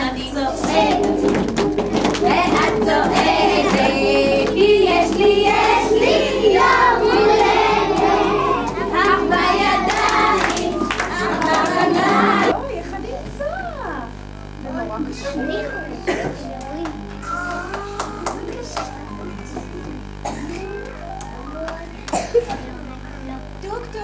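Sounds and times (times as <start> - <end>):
children and adults singing: 0.0 - 12.5
music: 0.0 - 12.5, 15.5 - 22.1
hand claps: 0.6 - 6.3, 7.1 - 12.4, 16.6 - 19.1.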